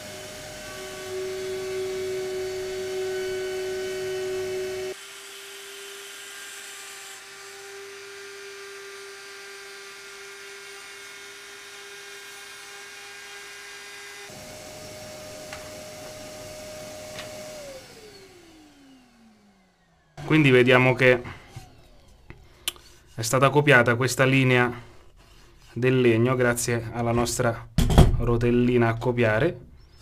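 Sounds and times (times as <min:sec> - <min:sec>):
router motor whining: 0:00.0 - 0:23.4
motor winding down: 0:14.3 - 0:22.8.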